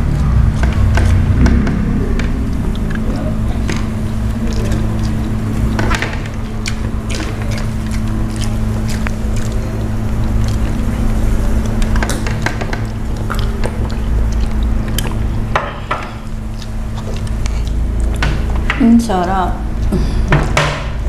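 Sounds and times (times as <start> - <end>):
steady low hum: 0.0 - 21.0
chewing and lip smacks: 2.5 - 18.7.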